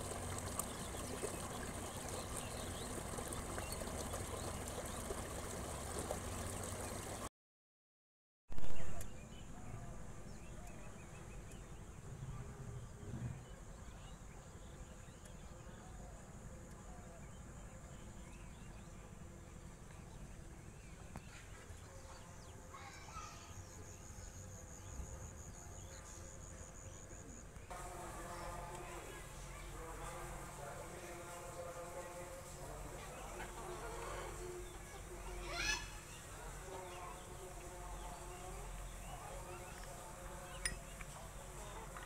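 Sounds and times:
water running through a ditch: 0:00.0 - 0:07.3, 0:27.7 - 0:42.0.

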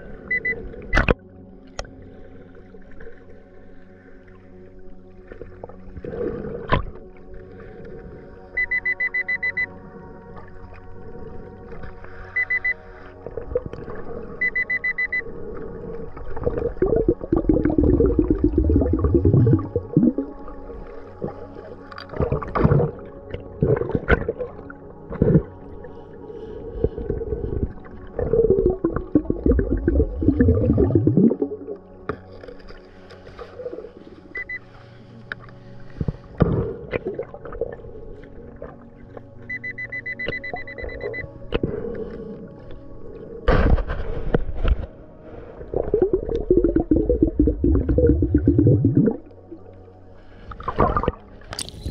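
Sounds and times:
metal detector beeping: 0:00.3 - 0:01.1, 0:08.6 - 0:09.7, 0:12.4 - 0:12.8, 0:14.4 - 0:15.2, 0:39.5 - 0:41.3
metal detector beeping underwater: 0:00.3 - 0:01.2, 0:08.5 - 0:09.8, 0:12.3 - 0:13.0, 0:14.4 - 0:15.4, 0:28.3 - 0:31.6, 0:33.6 - 0:34.7, 0:39.4 - 0:41.5, 0:46.0 - 0:49.2.

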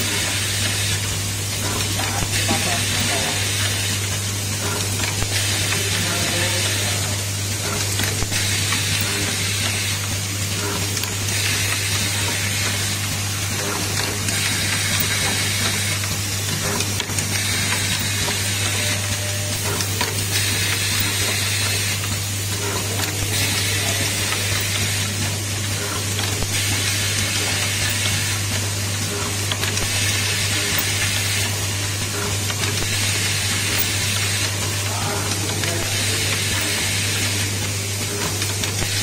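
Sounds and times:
machine hiss: 0:00.0 - 0:39.0.

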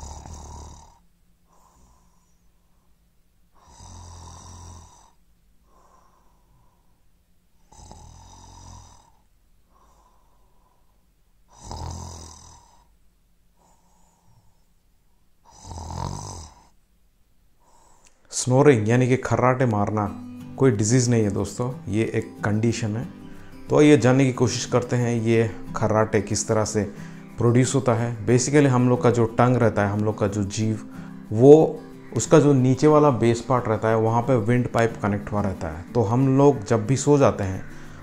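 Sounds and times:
man snoring: 0:00.0 - 0:02.4, 0:03.6 - 0:06.4, 0:07.6 - 0:10.3, 0:11.5 - 0:12.9, 0:15.4 - 0:16.8.

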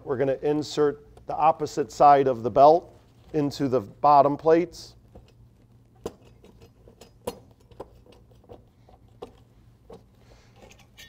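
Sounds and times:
metal plates and bolts clicking: 0:06.0 - 0:11.0.

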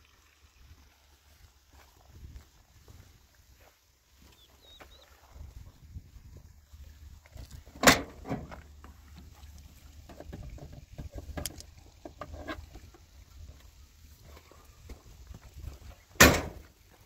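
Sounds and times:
small clicks and knocks: 0:10.1 - 0:12.8.

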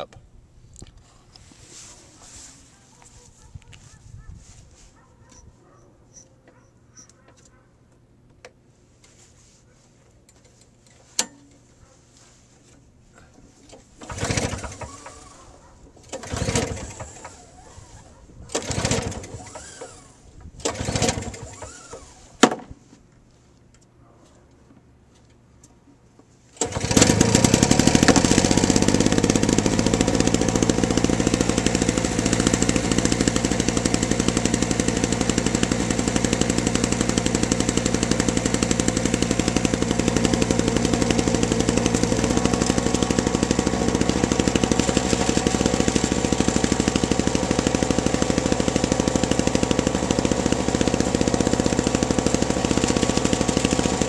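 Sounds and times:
snowblower engine running: 0:14.0 - 0:22.4, 0:26.6 - 0:54.0.

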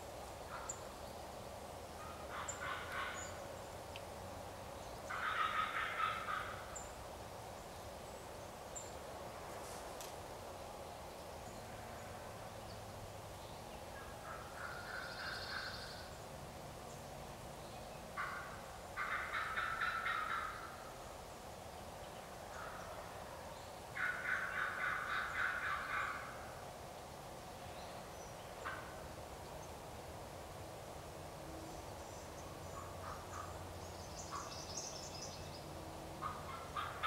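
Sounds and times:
turkey gobbling: 0:02.0 - 0:03.2, 0:05.1 - 0:06.6, 0:18.2 - 0:20.7, 0:24.0 - 0:26.4.

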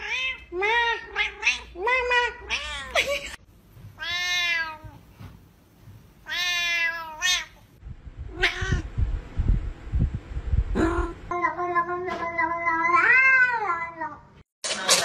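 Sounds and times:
cat meowing: 0:06.2 - 0:07.6, 0:08.3 - 0:08.9, 0:11.5 - 0:14.2
low irregular thumping: 0:07.8 - 0:11.3.

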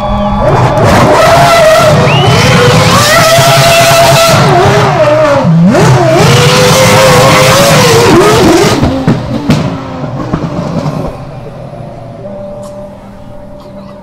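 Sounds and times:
racing car engine revving: 0:00.0 - 0:14.0.

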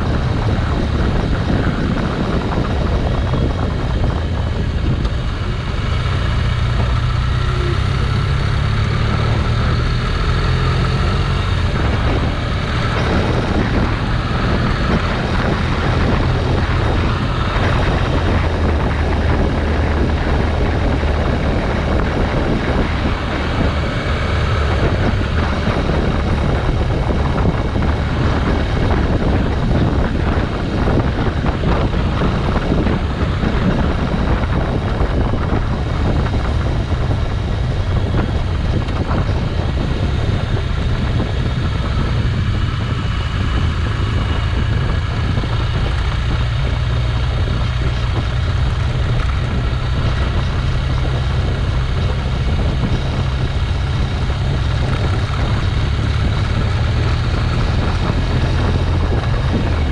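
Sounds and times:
motorcycle engine running: 0:00.0 - 0:59.9
road and wind noise: 0:00.0 - 0:59.9.

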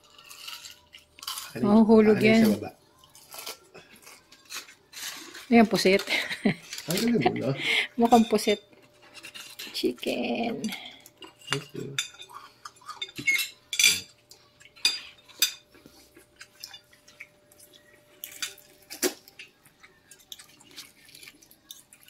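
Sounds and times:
cutlery clinking on plates: 0:08.0 - 0:09.8, 0:10.6 - 0:19.5.

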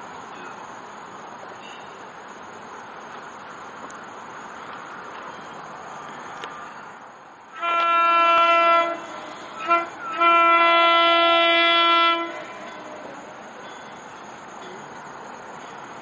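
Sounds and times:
rumble of rolling trains: 0:00.0 - 0:16.0
train horn blasts: 0:07.5 - 0:13.4.

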